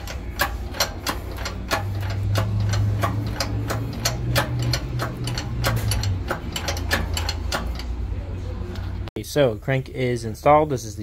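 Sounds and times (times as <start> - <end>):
sharp metallic clicks: 0.0 - 8.1
shop press hum: 0.0 - 9.1.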